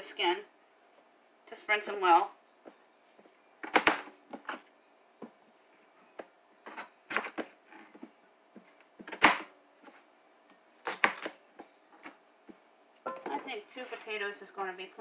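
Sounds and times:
knife chopping potatoes: 10.8s - 12.2s.

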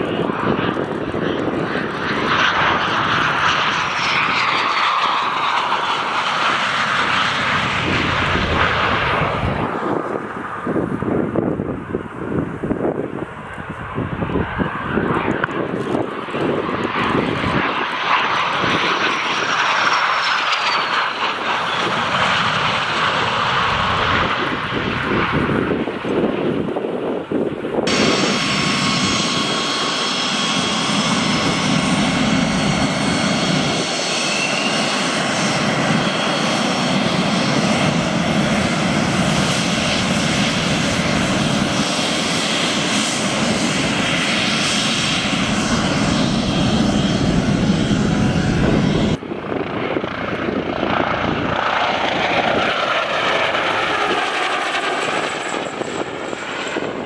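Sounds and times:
high turbine whine: 0.0s - 57.0s
jet engine running loud: 0.0s - 57.0s
helicopter flying past: 14.0s - 26.8s, 27.9s - 57.0s.

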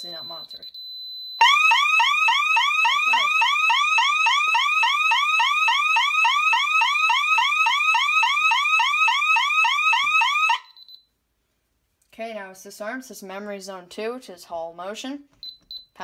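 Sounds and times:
electronic alarm siren yelping: 1.4s - 10.9s.

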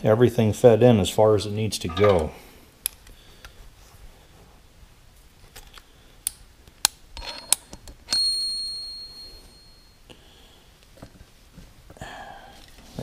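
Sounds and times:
metal clink with ringing tone: 1.9s - 2.4s, 8.1s - 10.0s.

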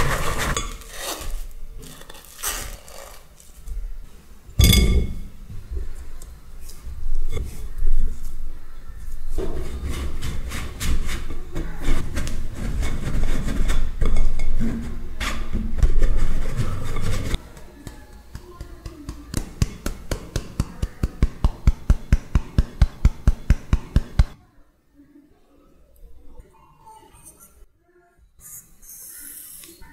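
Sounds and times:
spoon scraping through metal sieve: 0.0s - 3.3s.

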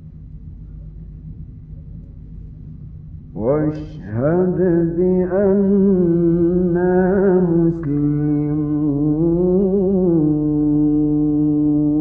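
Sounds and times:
man reciting melodically: 3.4s - 12.0s.

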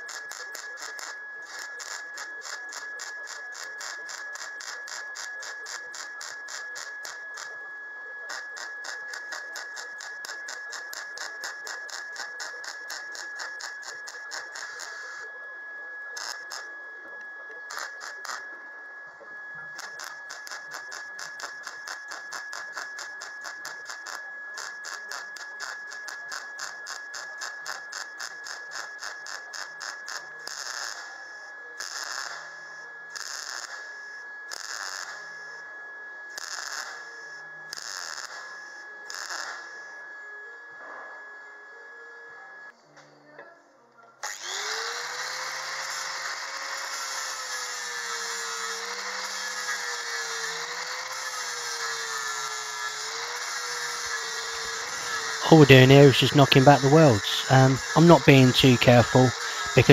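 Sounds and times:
welding arc crackling: 53.5s - 59.9s.

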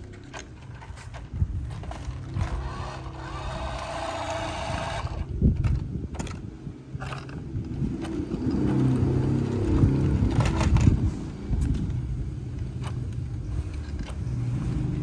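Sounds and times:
wheels spinning on gritty ground: 0.0s - 15.0s
toy car electric motor running: 2.0s - 5.3s.

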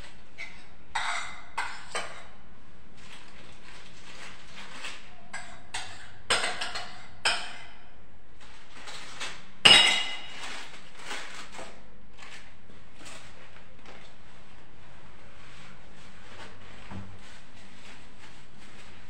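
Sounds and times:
kitchenware clinking: 5.3s - 7.8s, 9.6s - 10.5s
soft rustling: 10.4s - 19.0s.

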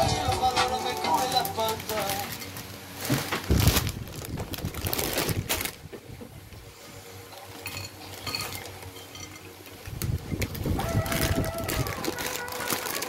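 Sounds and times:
plastic snack bag rustling: 0.0s - 5.9s, 9.8s - 13.0s
light clinks: 7.3s - 9.6s.

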